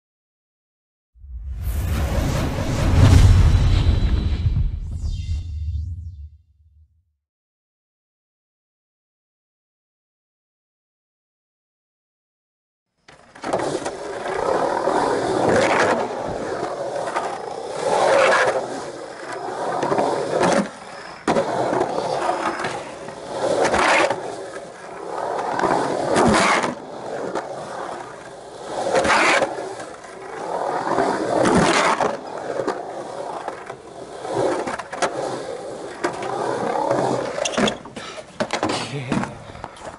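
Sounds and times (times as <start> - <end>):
skateboard wheels rolling on concrete: 13.0 - 39.9.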